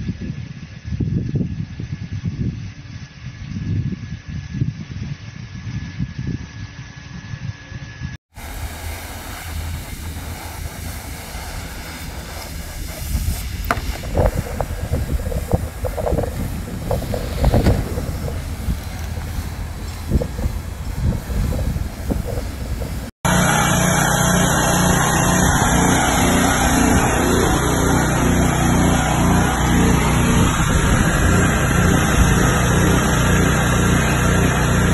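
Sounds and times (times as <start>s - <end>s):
machine humming: 8.4s - 34.9s
machine whirring: 8.4s - 34.9s.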